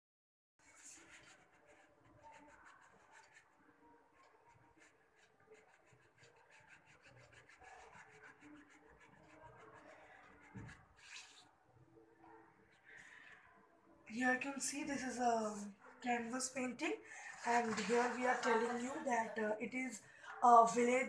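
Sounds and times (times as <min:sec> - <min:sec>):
paintbrush strokes on canvas: 0:00.6 - 0:11.5.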